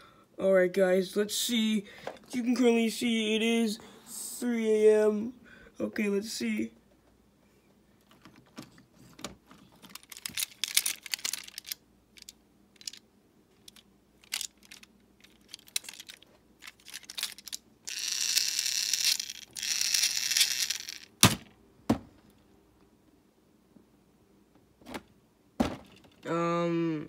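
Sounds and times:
plastic toy clicks and rattles: 0:09.8 - 0:13.0, 0:13.6 - 0:21.3.

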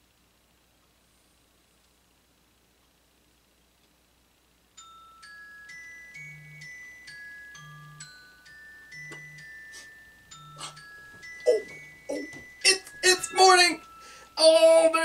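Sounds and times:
chiming glockenspiel melody: 0:04.8 - 0:15.0.

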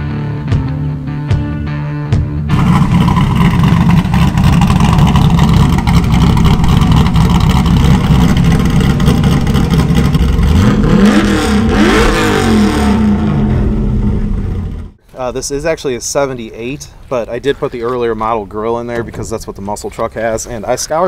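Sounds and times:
engine revving sharply: 0:02.5 - 0:15.0
engine running at high revs: 0:02.5 - 0:15.0.

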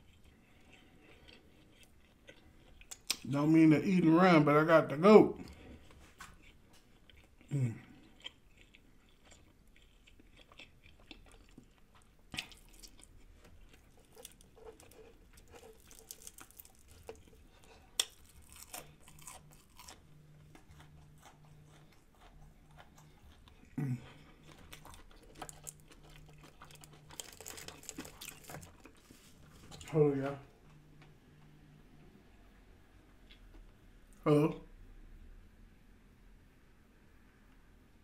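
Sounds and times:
chewing crispy fried food: 0:00.0 - 0:04.5, 0:05.4 - 0:31.5.

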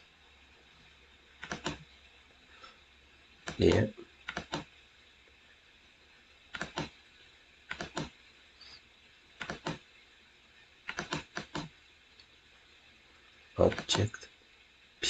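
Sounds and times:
keyboard and mouse clicks: 0:01.4 - 0:01.8, 0:04.3 - 0:04.7, 0:06.5 - 0:06.9, 0:07.7 - 0:08.1, 0:09.4 - 0:09.8, 0:10.9 - 0:11.7, 0:13.7 - 0:14.0.

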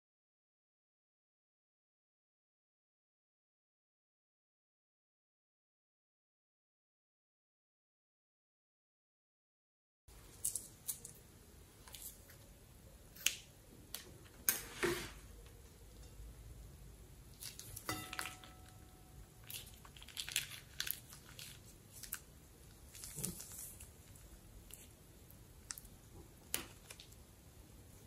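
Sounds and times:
wet slime squishes: 0:17.3 - 0:18.4, 0:19.4 - 0:27.2.

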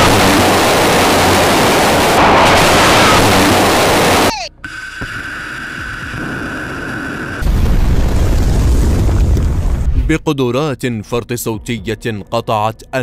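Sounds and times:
rocket motor roar: 0:00.0 - 0:07.5
steady high whine: 0:00.0 - 0:07.5.

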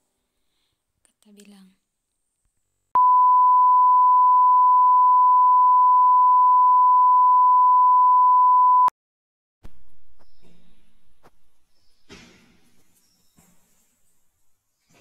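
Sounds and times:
steady test tone beep: 0:03.0 - 0:08.9.

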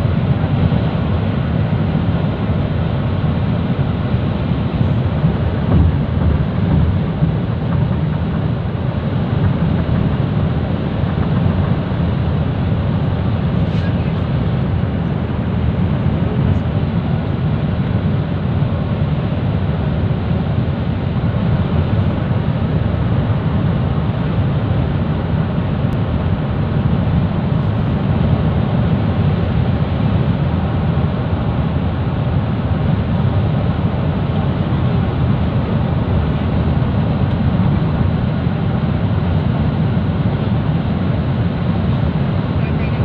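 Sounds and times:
car cabin road noise: 0:04.7 - 0:11.9.

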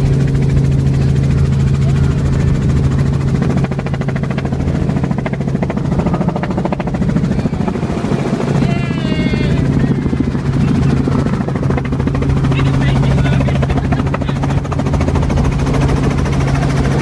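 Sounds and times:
helicopter rotor drone: 0:00.0 - 0:17.0.

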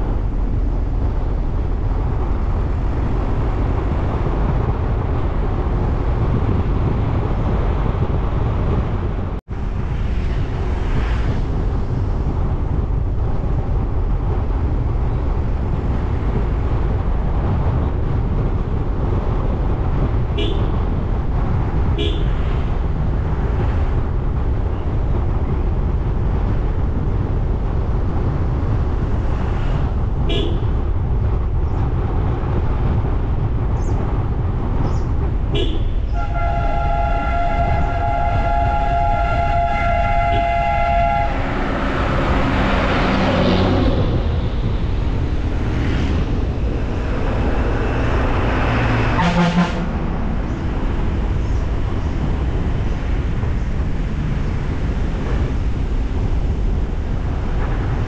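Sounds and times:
vehicle road and wind rumble: 0:00.0 - 0:58.0
car horn toots: 0:20.4 - 0:20.8, 0:22.0 - 0:22.5, 0:30.3 - 0:30.7, 0:35.5 - 0:41.9, 0:49.1 - 0:49.9.

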